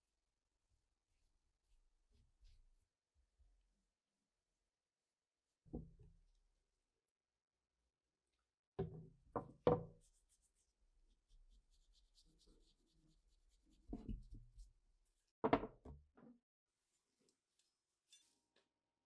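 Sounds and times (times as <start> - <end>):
gloved hands rubbing on wood: 10.0 - 14.8
wooden parts knocking on workbench: 15.4 - 16.2.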